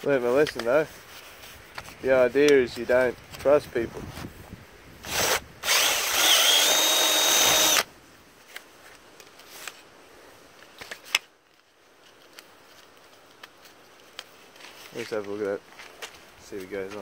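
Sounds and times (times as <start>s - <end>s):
cordless drill whining: 5.0s - 7.9s.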